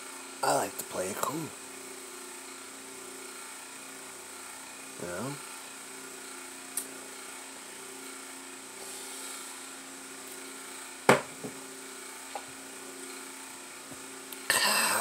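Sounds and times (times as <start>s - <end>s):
electrical hum with faint tones: 0.0s - 15.0s
sharp knock: 11.1s - 11.3s.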